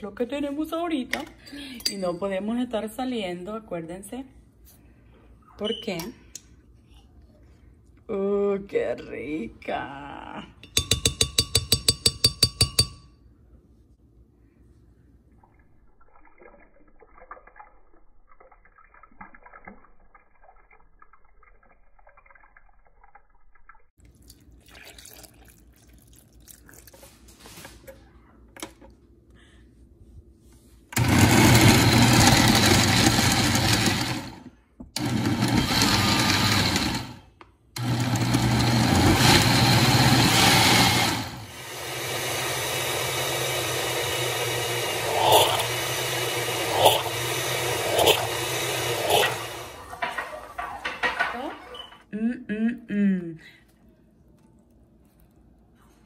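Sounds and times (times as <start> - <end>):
blender blending: 31.0 - 37.2, 37.8 - 49.8.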